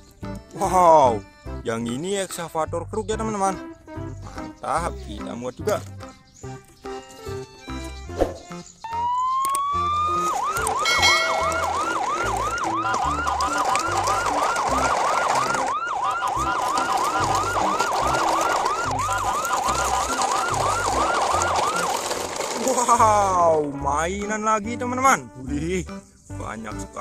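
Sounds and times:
electronic siren wailing: 8.8 - 22.0.

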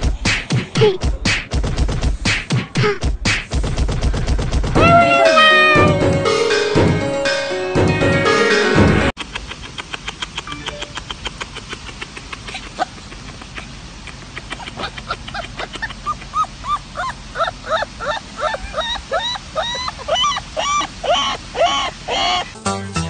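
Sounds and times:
dog whining yelps: 4.8 - 6.0, 15.6 - 22.5.

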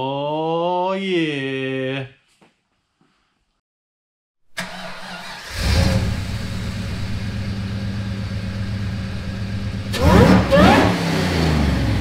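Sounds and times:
car engine revving and idling: 5.2 - 12.0.

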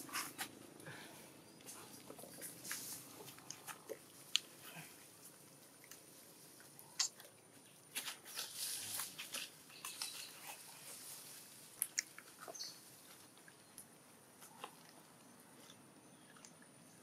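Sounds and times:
rustling of dry leaves: 0.0 - 6.8, 7.4 - 13.7.

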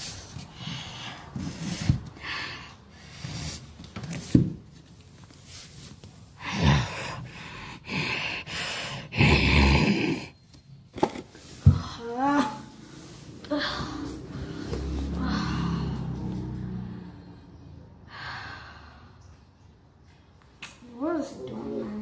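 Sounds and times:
person breathing hard and gasping: 6.4 - 10.3.

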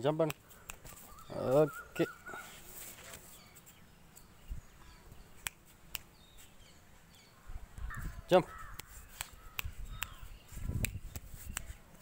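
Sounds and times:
faint birds chirping: 0.0 - 12.0
low outdoor ambience: 0.0 - 12.0
sharp ticks: 8.7 - 11.6.

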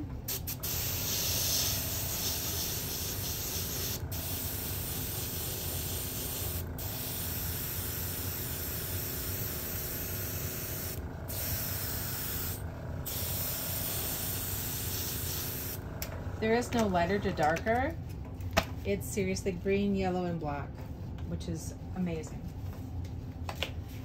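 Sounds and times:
airbrush hissing: 0.3 - 15.8.

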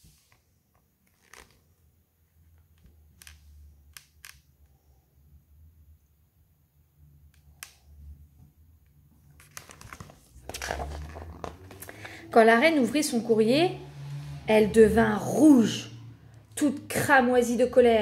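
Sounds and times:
book handling clicks and taps: 9.3 - 12.2.

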